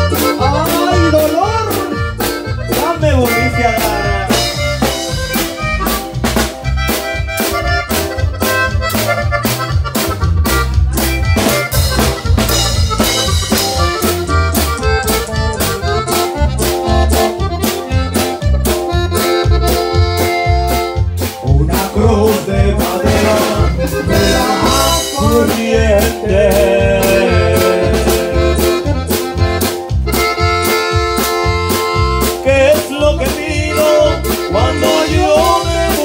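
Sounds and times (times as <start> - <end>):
button accordion playing melody: 0.0 - 36.0
drum kit fast beat: 0.0 - 36.0.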